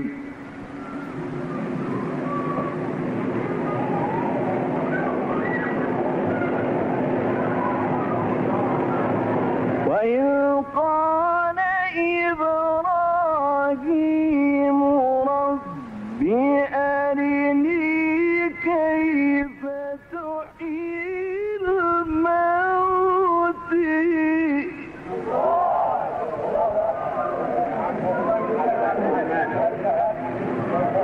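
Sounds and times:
man reciting melodically: 0:09.9 - 0:25.1.

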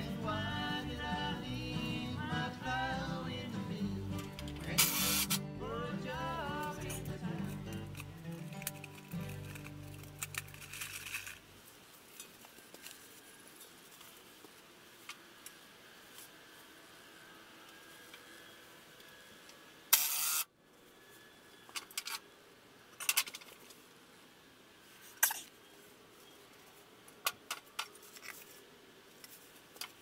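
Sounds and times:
background music: 0:00.0 - 0:10.5.

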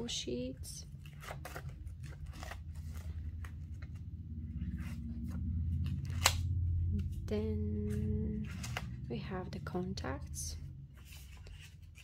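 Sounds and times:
paper pages rustling: 0:00.9 - 0:06.4, 0:07.9 - 0:09.0, 0:10.9 - 0:12.0.

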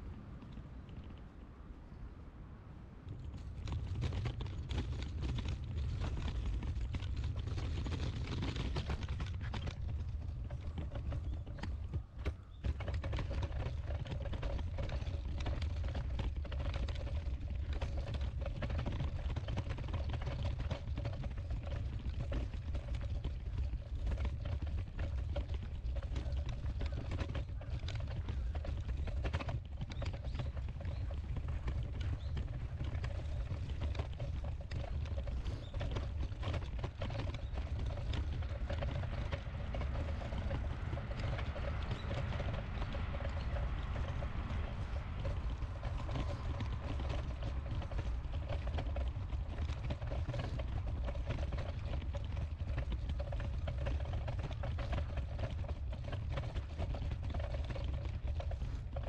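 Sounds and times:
footsteps outdoors: 0:03.0 - 0:59.0
low rumble: 0:37.6 - 0:50.1.

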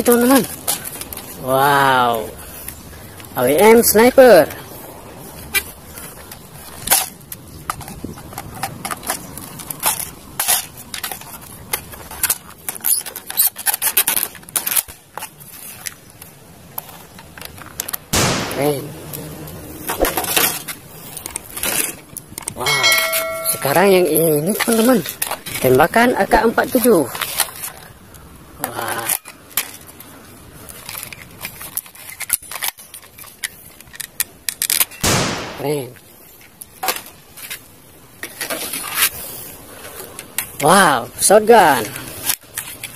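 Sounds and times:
plastic toy gun clicks and rattles: 0:30.8 - 0:35.0.

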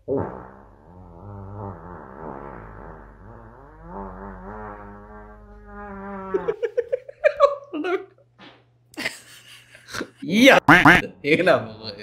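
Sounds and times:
fart noise: 0:00.0 - 0:06.6.

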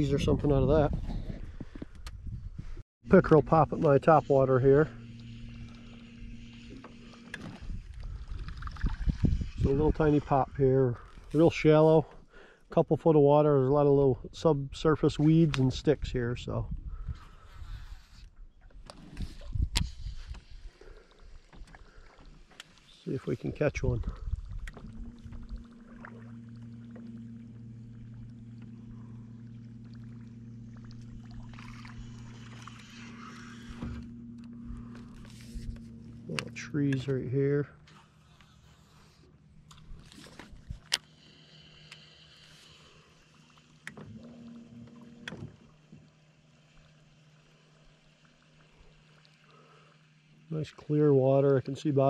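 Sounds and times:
steady low hum: 0:00.0 - 0:52.0
fishing reel clicking: 0:30.6 - 0:44.0.

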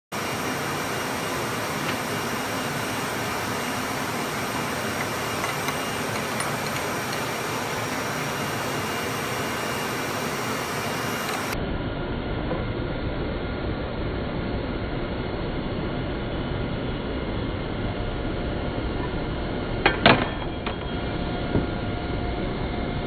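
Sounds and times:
faint hum: 0:00.1 - 0:23.0
machine drone with hiss: 0:00.1 - 0:23.0.

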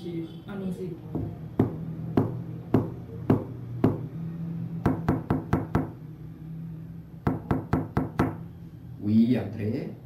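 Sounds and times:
knocking on a door: 0:01.1 - 0:04.0, 0:04.8 - 0:05.9, 0:07.3 - 0:08.4.

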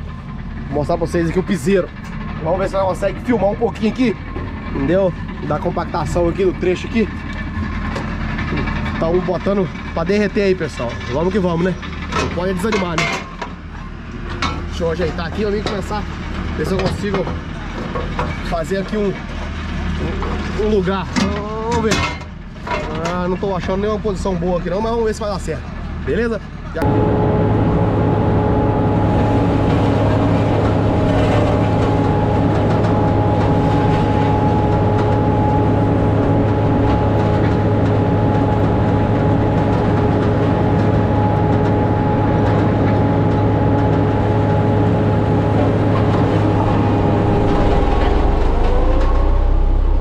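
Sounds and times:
roller compactor engine droning: 0:00.0 - 0:50.0
rising tone: 0:26.8 - 0:50.0.

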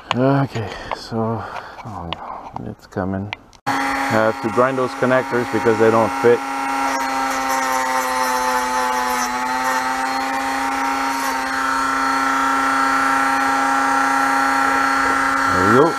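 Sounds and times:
rotary tool grinding: 0:03.7 - 0:15.9.

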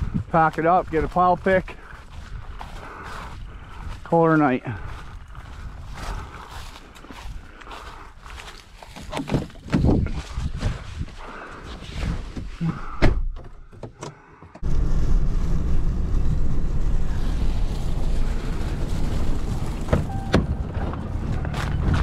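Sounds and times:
truck engine rumbling: 0:14.6 - 0:22.0.

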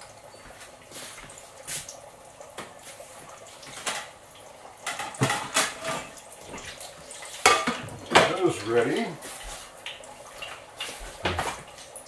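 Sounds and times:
dishes clattering: 0:03.7 - 0:04.2, 0:04.8 - 0:06.7, 0:07.4 - 0:08.4, 0:10.4 - 0:11.7.

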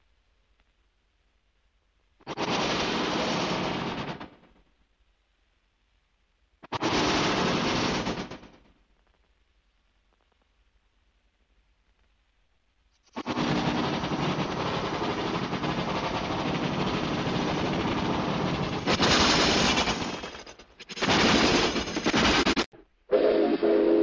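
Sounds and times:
steam locomotive chuffs: 0:13.1 - 0:24.0
steam whistle: 0:23.1 - 0:24.0.

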